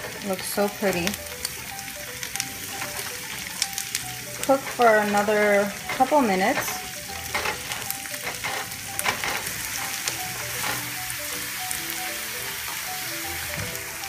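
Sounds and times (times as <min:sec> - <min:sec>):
onion sizzling in butter: 0:00.0 - 0:14.0
spatula scraping a pan: 0:02.7 - 0:11.0.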